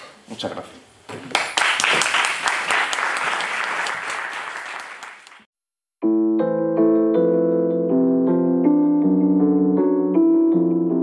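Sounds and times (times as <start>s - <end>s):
audience applause: 1.3s - 5.5s
piano music: 6.0s - 11.0s.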